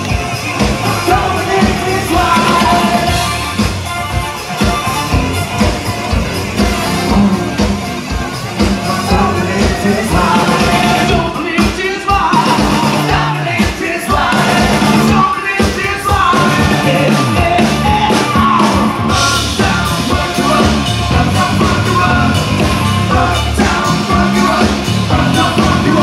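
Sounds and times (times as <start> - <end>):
person singing: 0.0 - 3.4, 8.6 - 26.0
drum beat: 0.0 - 26.0
electric guitar: 0.0 - 26.0.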